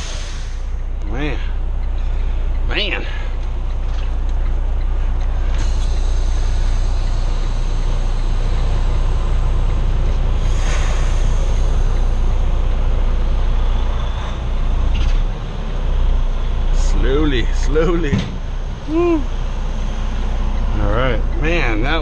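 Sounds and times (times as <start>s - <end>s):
diesel truck engine rumbling: 0.0s - 22.0s.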